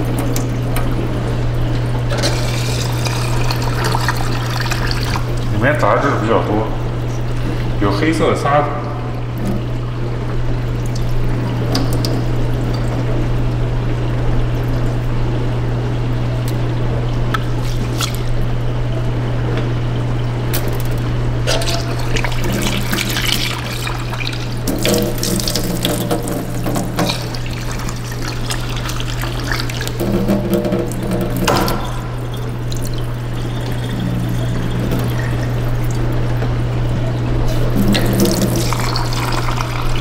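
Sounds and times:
water swishing and splashing: 0:00.0 - 0:19.2, 0:20.0 - 0:40.0
steady low hum: 0:00.0 - 0:40.0
tap running into sink: 0:21.5 - 0:36.5, 0:37.5 - 0:40.0.

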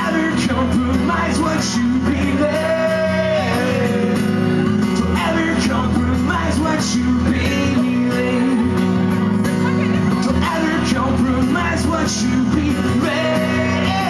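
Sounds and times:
person singing: 0:00.0 - 0:09.1, 0:09.7 - 0:14.0
acoustic guitar strumming: 0:00.0 - 0:14.0.

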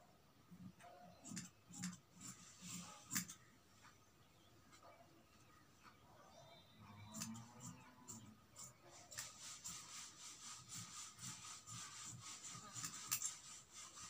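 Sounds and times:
scissors snipping fabric: 0:01.3 - 0:03.4, 0:07.0 - 0:09.4, 0:12.6 - 0:13.4.

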